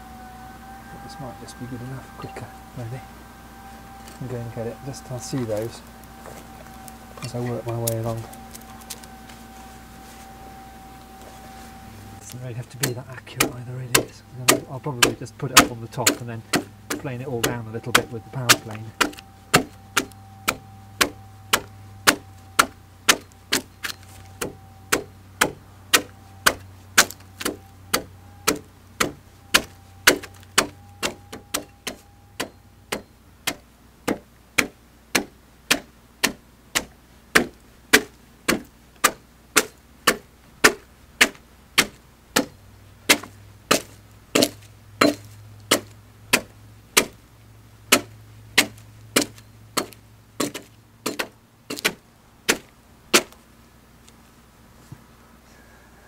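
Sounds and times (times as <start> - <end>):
axe chopping log: 12.3 - 47.2, 47.9 - 53.4.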